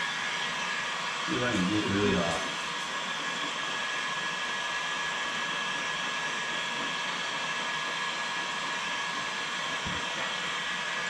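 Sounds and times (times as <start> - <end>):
faint high whine: 0.0 - 3.5
electric blower whooshing: 0.0 - 11.0.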